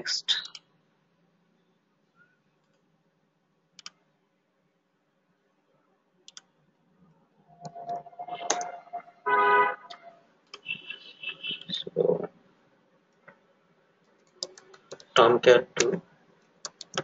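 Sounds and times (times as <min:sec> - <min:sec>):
computer mouse clicks: 0:00.4 - 0:00.7, 0:03.8 - 0:04.0, 0:06.2 - 0:06.5, 0:14.0 - 0:15.2, 0:15.8 - 0:17.0
keyboard taps: 0:16.7 - 0:17.0.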